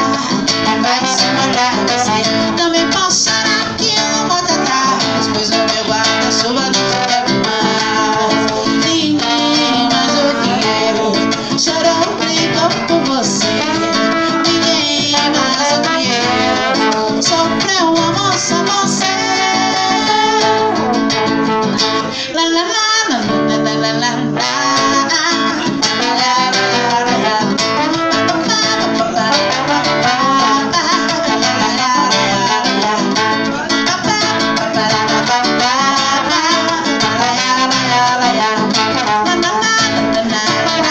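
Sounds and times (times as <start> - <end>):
trombone melody: 0.0 - 22.2, 23.5 - 40.9
acoustic guitar strumming: 0.0 - 40.9.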